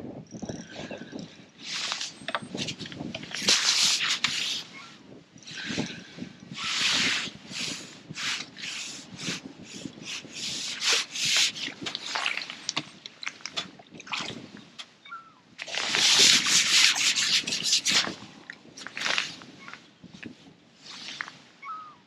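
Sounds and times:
rustling and rubbing: 0:01.6 - 0:05.0, 0:06.6 - 0:14.5, 0:15.6 - 0:21.5
short scraping rushes: 0:15.6 - 0:19.4.

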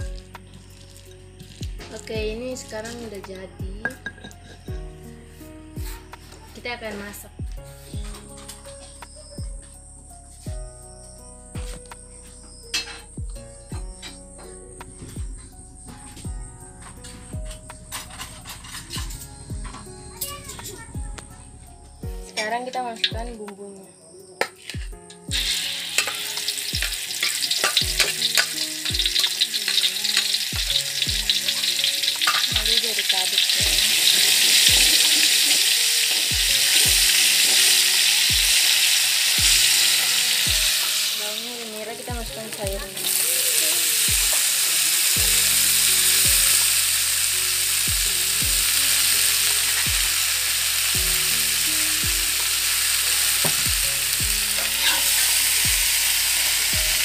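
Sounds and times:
paste sizzling in hot oil: 0:00.0 - 0:03.0, 0:24.4 - 0:57.0
background music with steady beat: 0:00.0 - 0:57.0
metal spatula stirring in wok: 0:24.5 - 0:41.1, 0:52.4 - 0:57.0.

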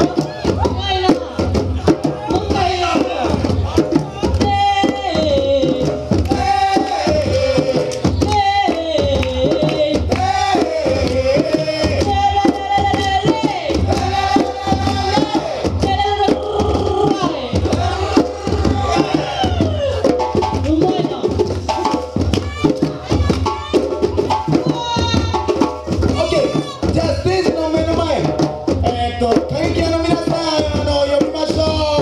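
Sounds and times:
person singing: 0:00.0 - 0:20.1
djembe drumming: 0:00.0 - 0:32.0
low drum beat: 0:00.0 - 0:32.0.

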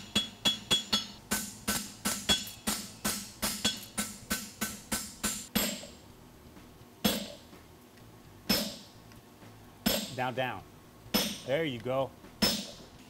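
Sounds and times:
hammer ringing on anvil: 0:00.0 - 0:05.8.

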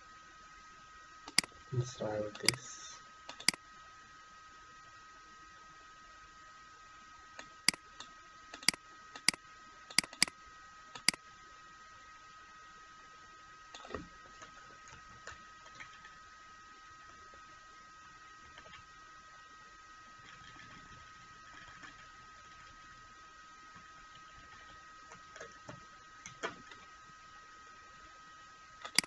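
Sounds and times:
faint high whine: 0:00.0 - 0:29.0
computer mouse clicks: 0:01.3 - 0:01.6, 0:02.3 - 0:02.7, 0:03.3 - 0:03.6, 0:07.4 - 0:10.4, 0:11.0 - 0:11.2, 0:13.8 - 0:16.1.

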